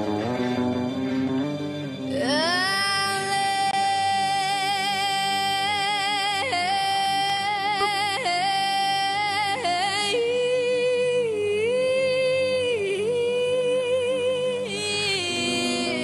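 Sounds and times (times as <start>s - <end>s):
backing music: 0.0s - 4.2s
woman singing: 2.1s - 16.0s.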